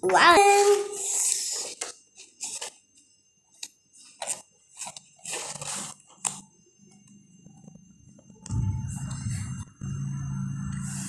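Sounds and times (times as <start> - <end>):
paper and cardboard rustling: 0.4 - 2.8, 4.1 - 6.4.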